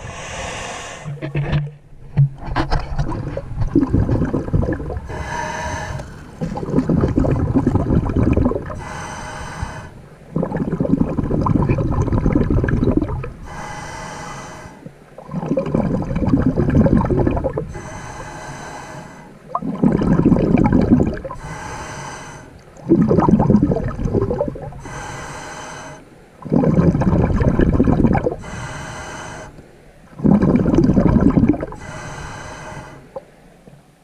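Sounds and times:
regulator breathing hiss: 0.0 - 1.2, 5.1 - 6.4, 8.8 - 10.0, 13.4 - 14.9, 17.7 - 19.4, 21.4 - 22.6, 24.8 - 26.1, 28.4 - 29.6, 31.7 - 33.3
rumbling exhaled bubbles: 0.0 - 14.0, 14.8 - 33.4.

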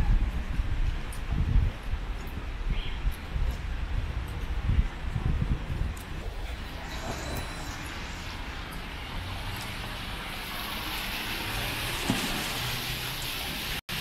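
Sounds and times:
tyres hissing on wet road: 6.3 - 14.0.

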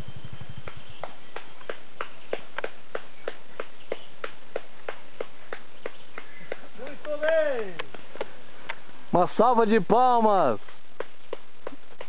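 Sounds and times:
off-road vehicle engine putter: 0.0 - 2.7.

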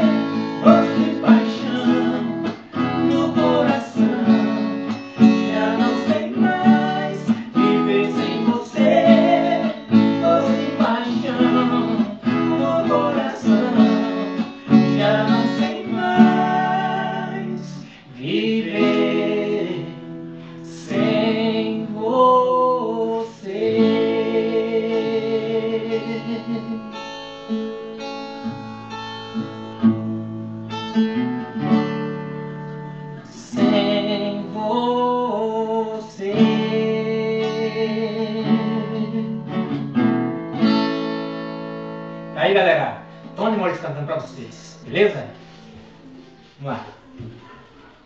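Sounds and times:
person singing: 0.0 - 27.3, 32.9 - 39.5
acoustic guitar strumming: 0.0 - 48.0.

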